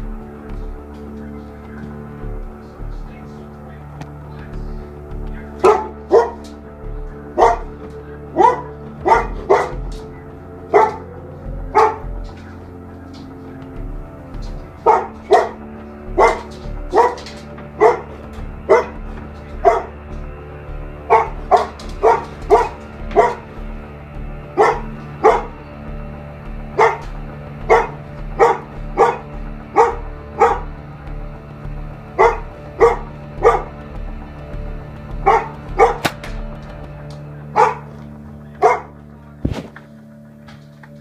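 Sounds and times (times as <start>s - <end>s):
background music with bass beat: 0.0s - 41.0s
dog barking: 5.6s - 6.4s, 7.4s - 7.7s, 8.4s - 9.8s, 10.7s - 11.1s, 11.7s - 12.1s, 14.8s - 15.6s, 16.2s - 17.2s, 17.8s - 18.1s, 18.7s - 19.0s, 19.6s - 19.9s, 21.1s - 23.4s, 24.6s - 25.5s, 26.8s - 27.0s, 27.7s - 29.2s, 29.8s - 30.7s, 32.2s - 33.7s, 35.2s - 36.2s, 37.6s - 37.9s, 38.6s - 39.0s.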